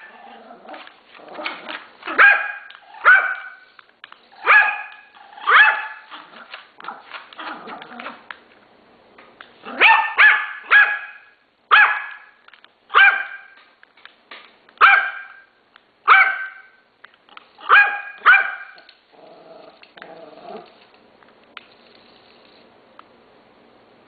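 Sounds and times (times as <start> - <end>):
dog growling: 0.0 - 1.9, 6.1 - 8.3, 19.1 - 20.8
small dog barking: 2.1 - 3.6, 4.4 - 6.3, 9.7 - 13.6, 14.8 - 15.5, 16.1 - 16.8, 17.6 - 18.8.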